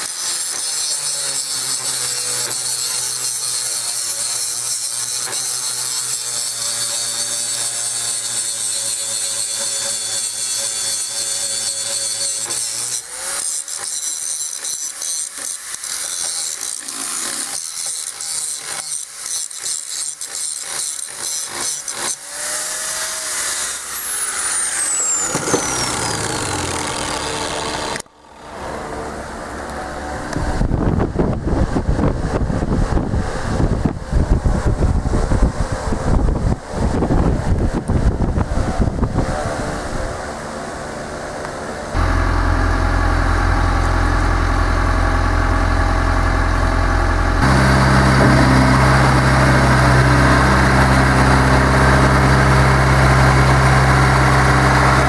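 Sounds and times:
angle grinder cutting steel: 0.0 - 28.1, 41.9 - 55.0
grinder winding down whine: 0.0 - 30.8, 41.9 - 55.0.

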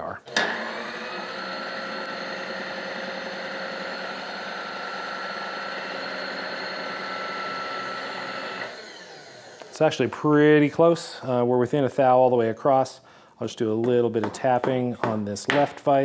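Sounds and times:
power feed motor whining: 0.3 - 9.8.

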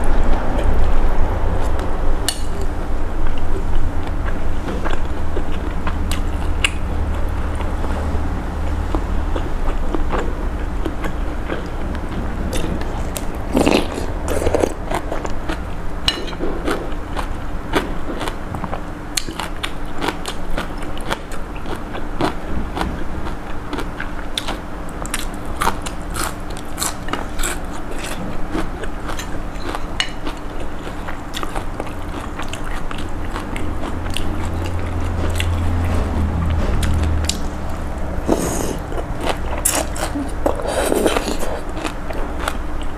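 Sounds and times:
person chewing and lip-smacking: 1.6 - 7.8, 8.7 - 42.9.

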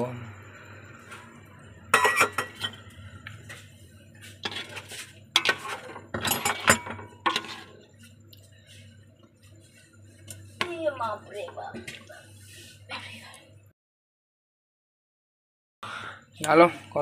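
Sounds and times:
metal ladle scraping a pot: 4.2 - 8.1.

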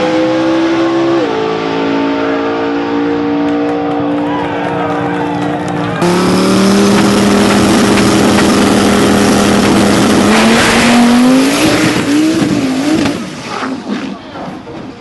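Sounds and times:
drag car engine revving: 5.4 - 14.2.

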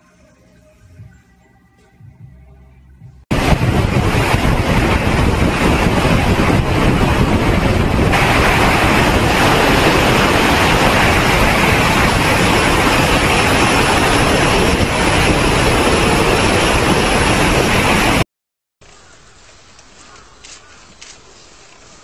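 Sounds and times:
wind buffeting microphone: 3.3 - 18.2.

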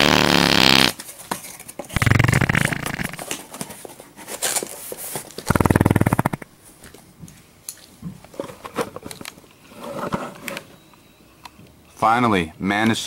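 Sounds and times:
fart sound effects: 0.0 - 1.0, 1.9 - 3.3, 5.5 - 6.5.

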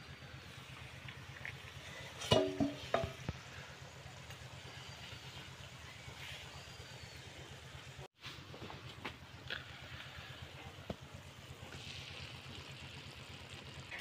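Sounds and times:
steel bowl clanking on metal pan: 2.2 - 3.2
fish sizzling in a pan: 9.3 - 14.0.

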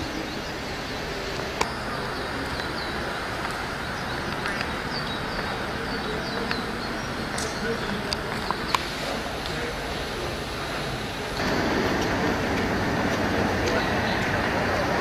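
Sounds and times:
traffic noise: 0.0 - 15.0.

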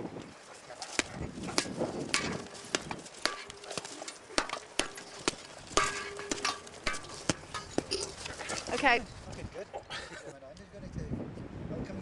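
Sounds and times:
swords clashing: 0.8 - 9.0
swords striking shield: 0.9 - 9.0.

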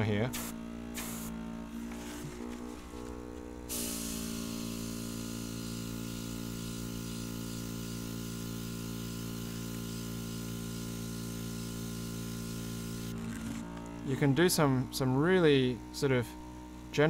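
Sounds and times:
small compressor humming: 0.0 - 17.0
airbrush hissing: 0.3 - 13.6.

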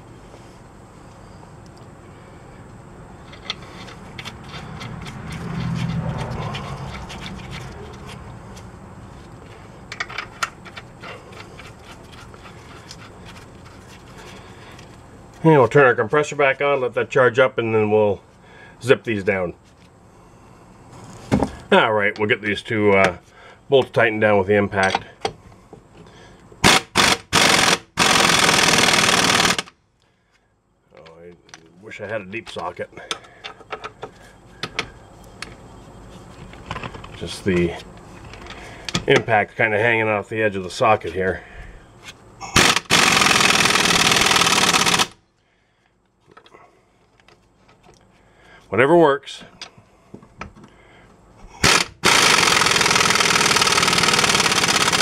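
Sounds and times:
metallic clicks and scrapes: 3.2 - 15.0
pneumatic impact wrench hammering: 26.6 - 29.7, 42.5 - 45.2, 51.6 - 55.0.

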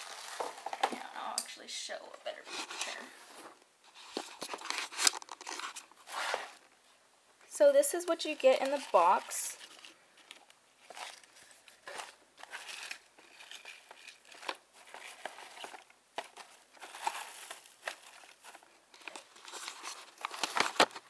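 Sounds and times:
shredded paper rustling: 0.0 - 0.9.

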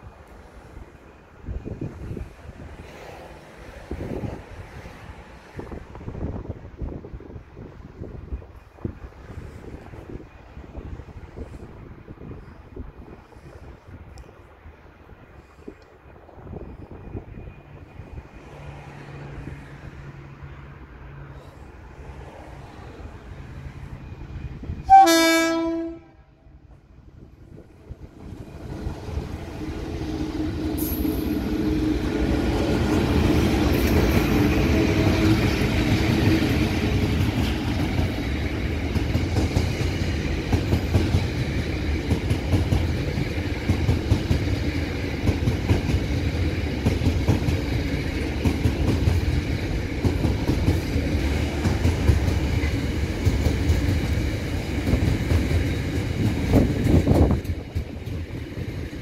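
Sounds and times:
diesel locomotive engines: 0.0 - 59.0
train wheels clattering: 28.3 - 59.0.

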